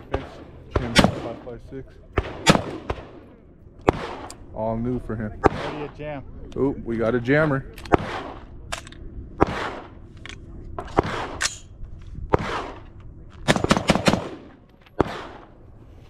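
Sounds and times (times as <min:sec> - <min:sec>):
rifle shots with echo: 0:00.0 - 0:04.6, 0:05.3 - 0:06.1, 0:07.7 - 0:10.1, 0:10.8 - 0:11.7, 0:12.3 - 0:15.6.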